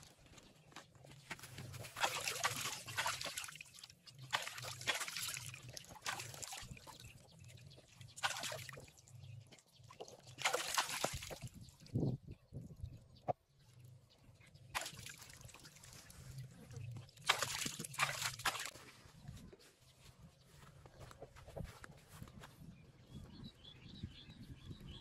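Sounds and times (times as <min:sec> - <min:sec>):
water sloshing and dripping: 0:00.0 - 0:12.0, 0:13.8 - 0:19.0.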